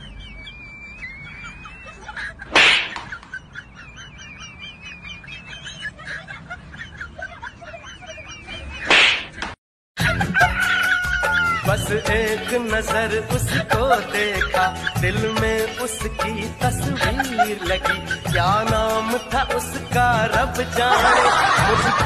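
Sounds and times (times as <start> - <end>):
birds chirping: 0.0 - 9.6, 11.0 - 21.6.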